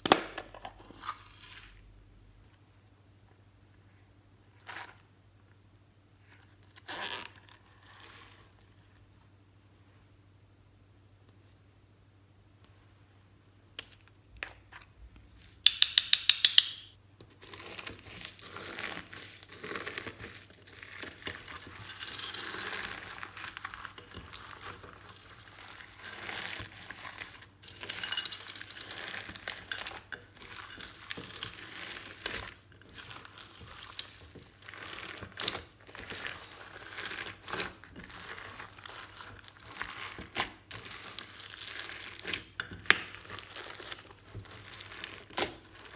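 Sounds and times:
crunchy slime squishing: 17.3 - 45.9.

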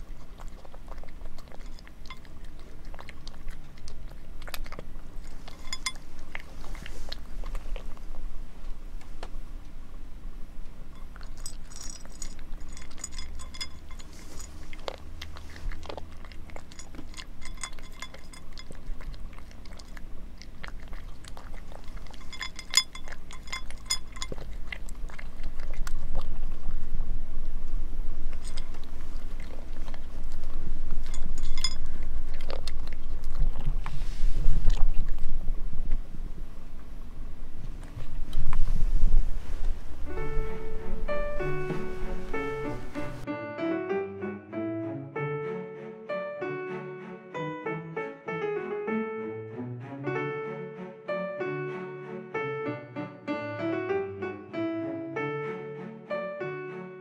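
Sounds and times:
cat crunching dry kibble: 0.0 - 9.1, 10.9 - 27.0, 28.1 - 43.2
kibble clicking against plate: 11.0 - 26.3
low rumble: 24.3 - 43.3.

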